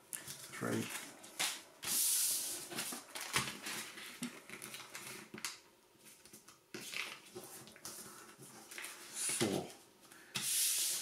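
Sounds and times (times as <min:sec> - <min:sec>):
paper crinkling and rustling: 0:02.7 - 0:09.6.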